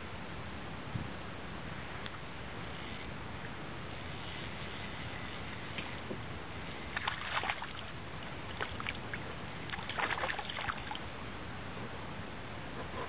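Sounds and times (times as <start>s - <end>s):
wind: 0.0s - 13.0s
water noise: 1.7s - 13.0s
fish splashing at surface: 6.9s - 7.9s, 8.5s - 9.1s, 9.7s - 11.0s.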